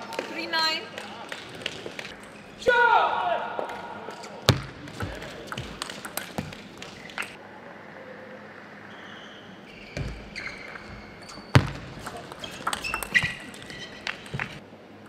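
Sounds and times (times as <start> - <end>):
table tennis ball clicking: 5.0 - 7.4, 12.1 - 14.6
shoes squeaking on floor: 8.9 - 14.6.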